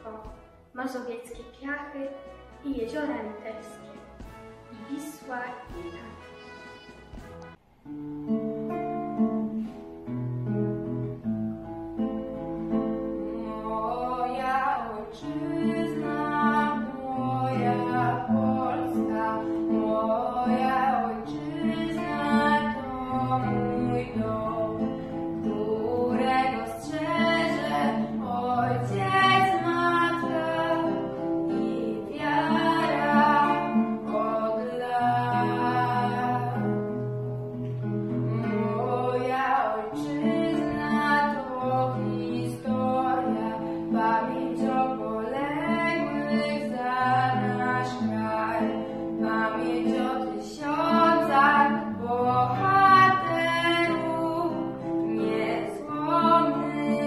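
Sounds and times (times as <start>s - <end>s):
acoustic guitar chords: 0.0s - 57.0s
girl singing: 13.1s - 36.8s, 38.1s - 57.0s.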